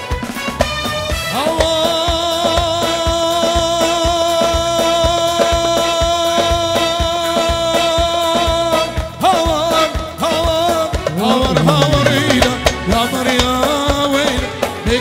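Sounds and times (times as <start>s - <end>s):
steady drum beat: 0.0s - 15.0s
synthesizer keyboard held tone: 11.1s - 12.9s
wavering melody line: 11.1s - 12.9s.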